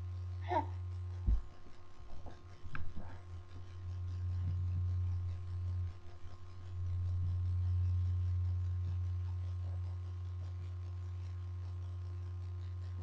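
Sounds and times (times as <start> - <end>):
steady low hum: 0.0 - 13.0
low thump: 1.2 - 1.5.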